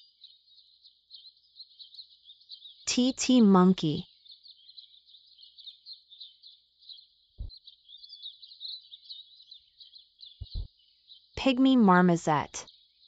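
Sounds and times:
chorus of high chirping calls: 1.2 - 10.7
low thump: 10.4 - 10.7.

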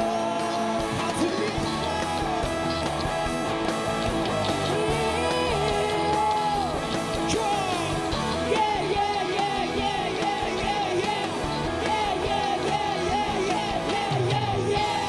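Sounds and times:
drums: 0.0 - 15.0
electric guitar: 0.0 - 15.0
person singing: 4.5 - 15.0.

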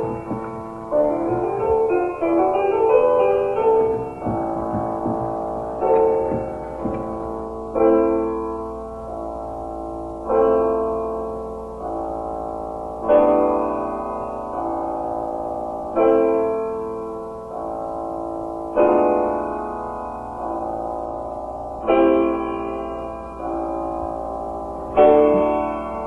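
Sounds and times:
sombre solo piano chords: 0.0 - 26.0.

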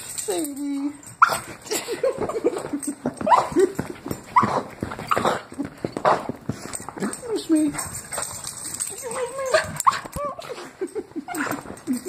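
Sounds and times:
dog whimpering and yipping: 3.2 - 5.3, 8.8 - 10.7.

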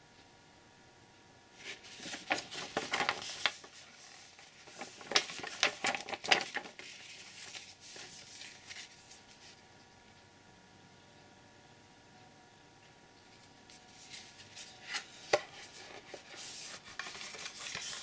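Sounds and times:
glossy paper crinkling: 1.6 - 9.6, 13.3 - 18.0.

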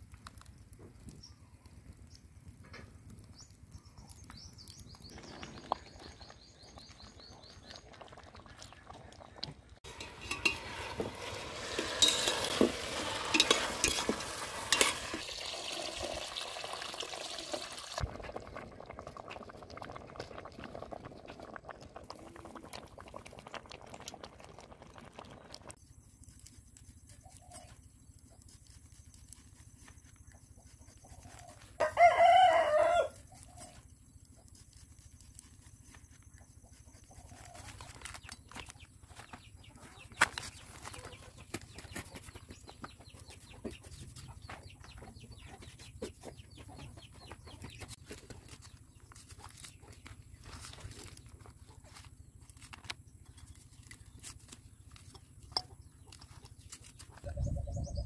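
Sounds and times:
pot hissing and crackling over fire: 0.0 - 30.2
rooster crowing: 31.8 - 33.2.

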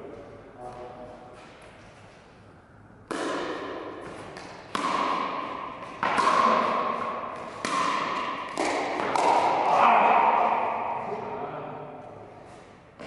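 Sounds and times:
paddles hitting ball: 3.0 - 11.1.

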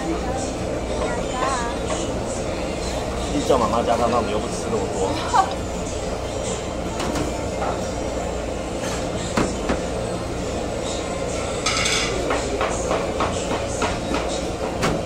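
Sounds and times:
restaurant background rumble: 0.0 - 15.0.

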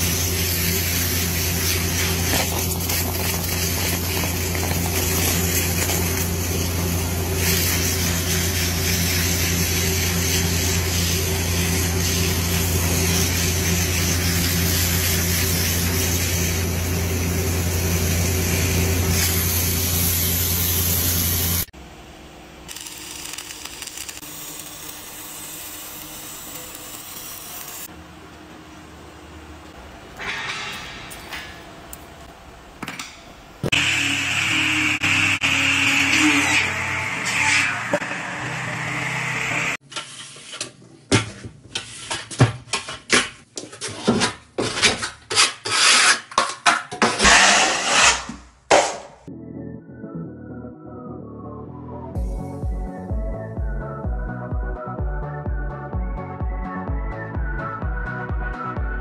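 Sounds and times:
arc welding hiss: 0.0 - 21.7, 22.7 - 27.9
high-pressure water jet hissing: 0.0 - 21.7.

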